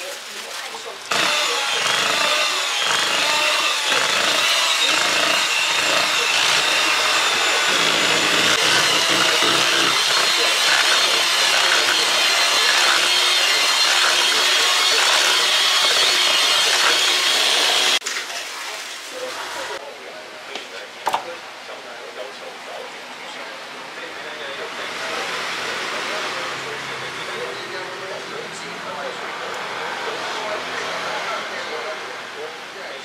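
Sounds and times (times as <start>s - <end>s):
beaters churning batter: 0.0s - 19.8s
electric mixer motor whine: 1.1s - 18.0s.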